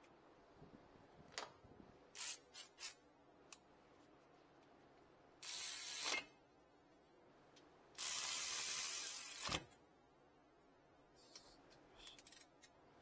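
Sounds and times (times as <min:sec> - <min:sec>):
electric ratchet whirring: 0:02.2 - 0:03.0, 0:05.4 - 0:06.2, 0:08.0 - 0:09.6.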